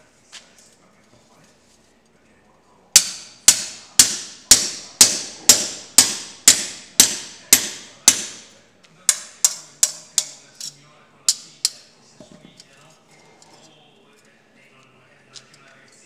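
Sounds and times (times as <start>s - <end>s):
hammer striking copper sheet: 3.0s - 8.5s, 9.1s - 10.4s, 11.3s - 11.8s.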